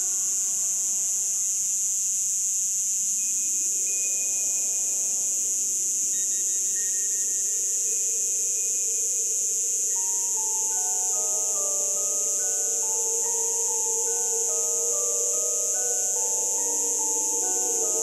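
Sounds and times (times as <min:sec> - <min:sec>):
cicadas buzzing: 0:00.0 - 0:18.0
soft music notes: 0:06.3 - 0:18.0.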